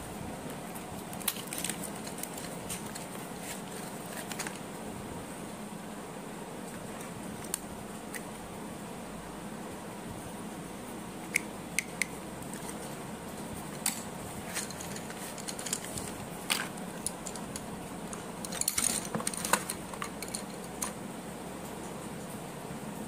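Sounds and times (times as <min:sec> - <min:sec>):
plastic parts clicking: 0:01.1 - 0:04.6, 0:13.8 - 0:21.0.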